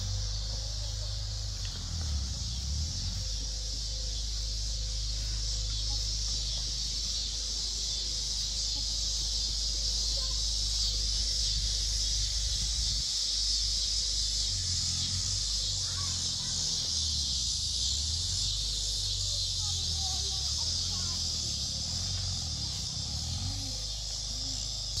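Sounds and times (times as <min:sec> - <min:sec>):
low rumble: 0:00.0 - 0:13.1
insect chorus chirring: 0:00.0 - 0:25.0.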